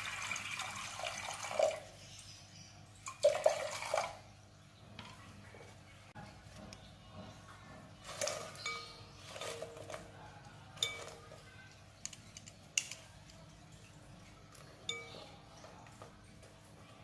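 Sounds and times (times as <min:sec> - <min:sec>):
metal strainer clinking on glass: 0:08.1 - 0:10.1, 0:10.8 - 0:13.3, 0:14.8 - 0:15.4.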